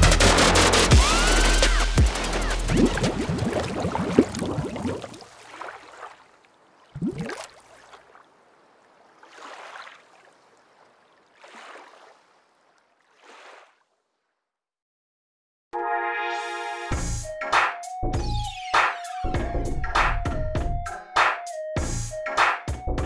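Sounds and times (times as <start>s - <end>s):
electronic music: 0.0s - 4.2s
liquid splash with crackling spray: 2.1s - 8.3s, 9.1s - 10.4s.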